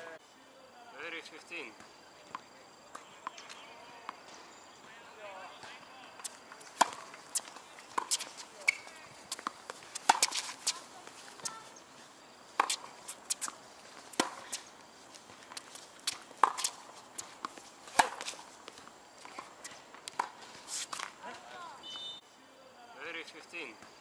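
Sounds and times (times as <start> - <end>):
tennis ball bouncing on court: 5.6 - 11.7, 12.6 - 20.4
tennis ball hit by rackets: 6.0 - 11.7, 12.6 - 14.7, 15.5 - 21.5.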